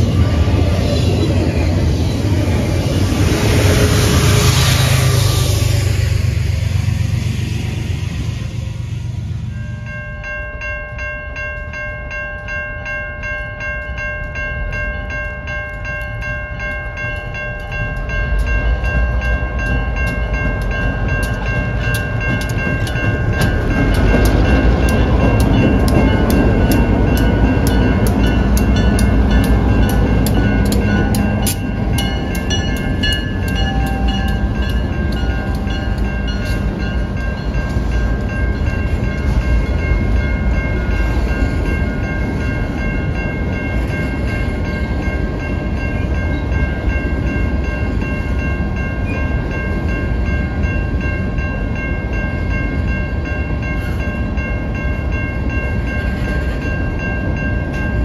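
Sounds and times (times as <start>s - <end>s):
freight cars rumbling past: 0.0s - 10.1s
diesel locomotive engine hum: 0.0s - 58.0s
train wheel clicks: 15.7s - 39.8s.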